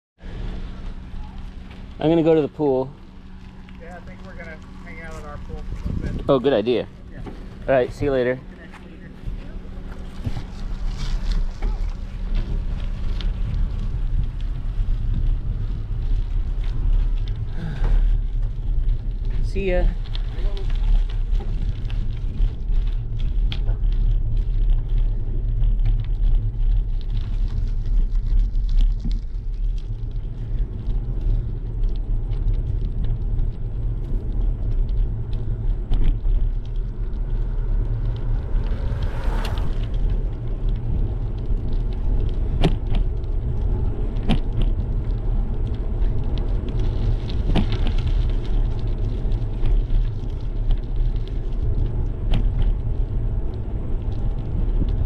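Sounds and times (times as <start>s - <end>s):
tyre noise on pavement: 0.2s - 55.0s
wind buffeting: 0.2s - 55.0s
bike clicks and rattles: 9.3s - 55.0s.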